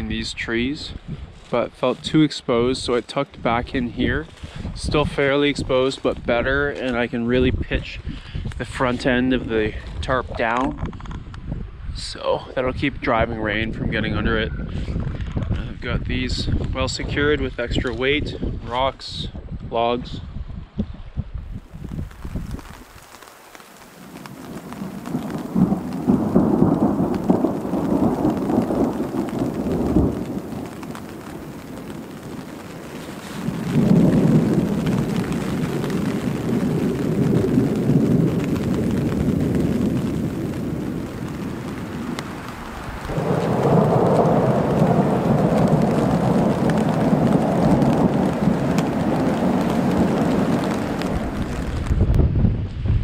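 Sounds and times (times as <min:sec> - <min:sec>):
heavy rain: 0:00.6 - 0:10.0, 0:21.5 - 0:52.6
thunder rumbling: 0:21.5 - 0:53.0.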